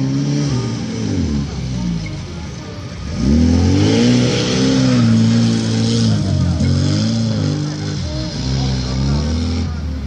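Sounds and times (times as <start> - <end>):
off-road vehicle engine revving: 0.0 - 10.0.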